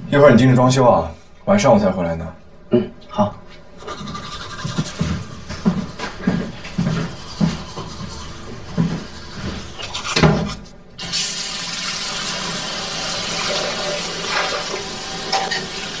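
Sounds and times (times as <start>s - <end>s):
soft footsteps: 3.4s - 10.7s
tap water running into sink: 11.0s - 16.0s.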